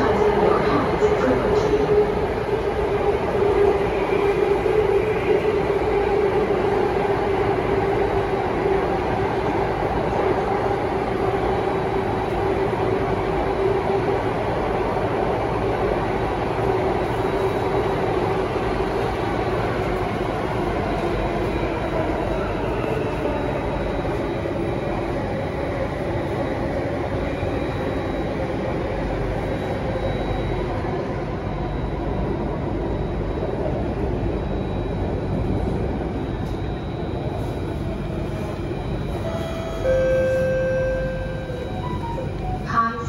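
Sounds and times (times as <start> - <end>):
wheels rumbling on rail: 0.0 - 43.0.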